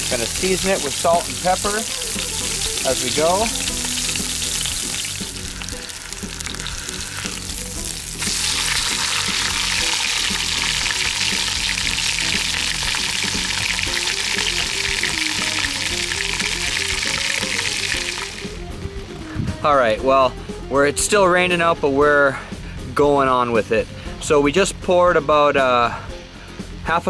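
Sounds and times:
meat sizzling in hot oil: 0.0s - 18.6s.

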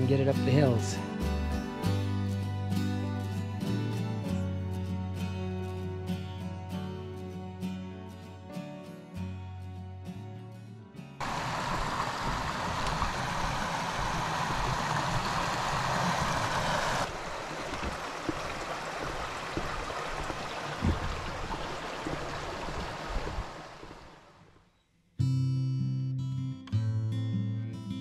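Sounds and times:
creek water rushing: 11.2s - 24.4s
short knocks: 17.7s - 22.9s.

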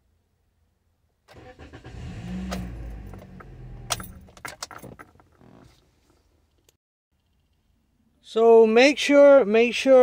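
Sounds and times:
engine cranking without firing: 1.3s - 5.6s
clicks and rattles: 3.9s - 5.4s.

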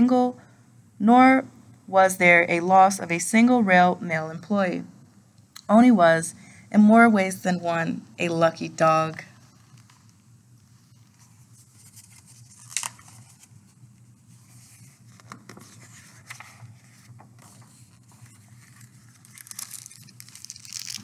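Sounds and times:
low steady hum: 0.0s - 21.0s
book pages rustling: 9.4s - 21.0s.

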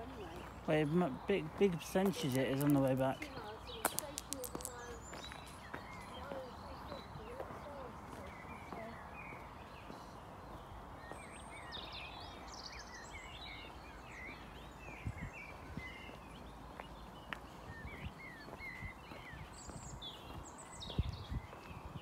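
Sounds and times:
soft footsteps: 0.0s - 11.3s
low outdoor background noise: 0.0s - 22.0s
songbirds chirping: 0.0s - 22.0s.

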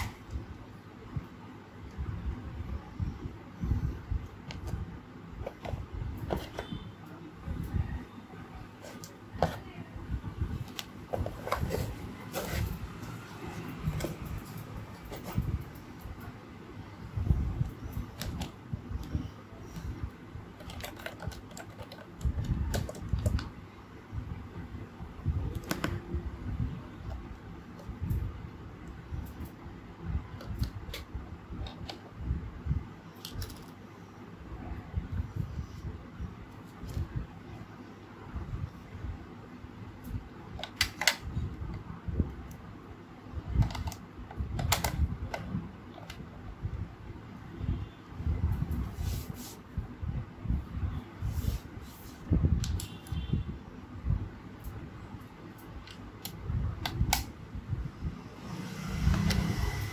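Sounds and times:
handling noise: 10.4s - 16.4s.

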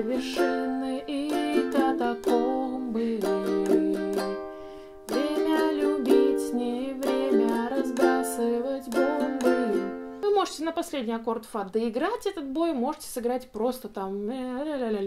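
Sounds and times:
ukulele strumming chords: 0.0s - 10.4s.

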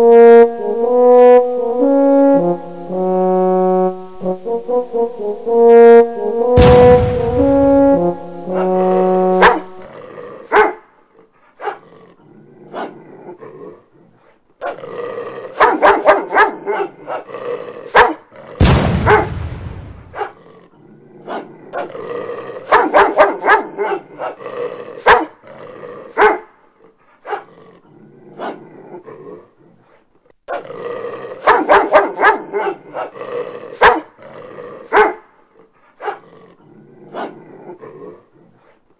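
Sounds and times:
sudden loud rushing noise: 6.6s - 8.4s
dog barking: 9.4s - 9.7s, 10.5s - 10.9s, 11.6s - 11.8s, 15.6s - 17.3s, 17.9s - 18.2s, 19.1s - 19.3s, 20.1s - 20.4s, 22.7s - 24.4s, 25.0s - 25.4s, 26.2s - 26.6s, 27.2s - 27.5s, 31.4s - 33.2s, 33.8s - 34.2s, 34.9s - 35.3s, 36.0s - 36.2s.

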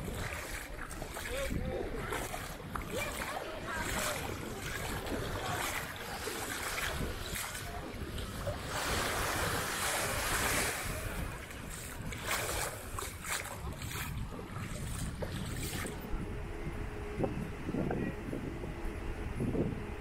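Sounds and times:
wind buffeting microphone: 0.0s - 20.0s
sea surf washing in: 2.2s - 13.7s.

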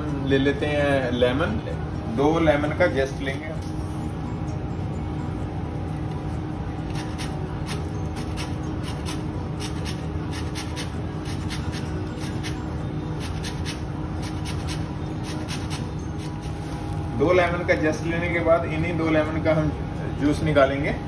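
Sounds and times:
steady low hum: 0.0s - 21.0s
lemon rasping on metal grater: 13.2s - 16.5s.

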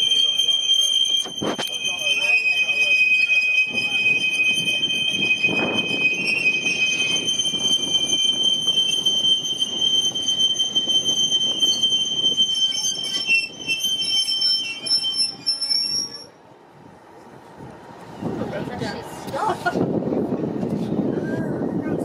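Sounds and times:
railway wheels squealing: 0.0s - 16.4s.

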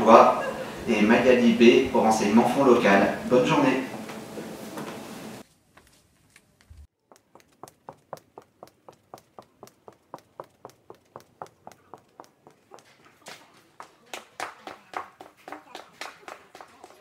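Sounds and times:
footsteps on hard floor: 3.9s - 6.0s, 6.6s - 13.5s
faint taps: 7.1s - 13.4s.

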